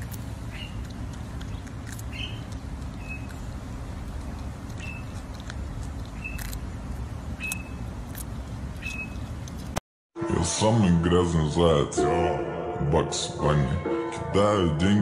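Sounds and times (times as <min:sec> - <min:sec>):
animal chewing with soft clicks: 0:00.0 - 0:09.8
steady low rumble: 0:00.0 - 0:09.8.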